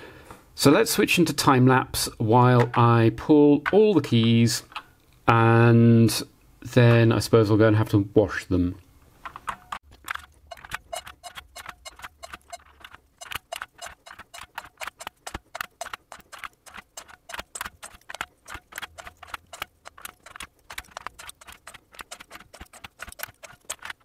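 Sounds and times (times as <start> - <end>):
keycaps clicking off keyboard: 9.2 - 24.0.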